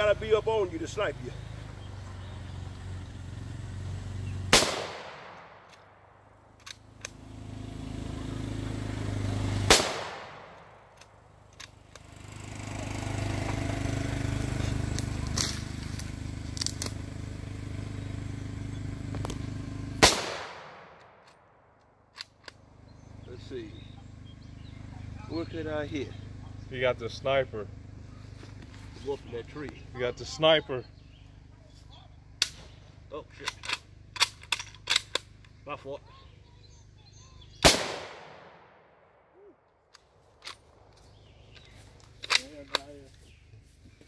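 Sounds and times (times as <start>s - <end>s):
rifle shots echoing: 4.5s - 6.3s, 9.7s - 11.0s, 20.0s - 21.3s, 37.6s - 39.2s.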